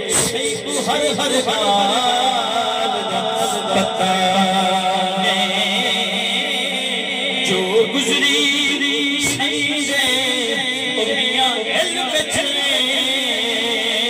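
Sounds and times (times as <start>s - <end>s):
man singing devotional verse: 0.0s - 14.0s.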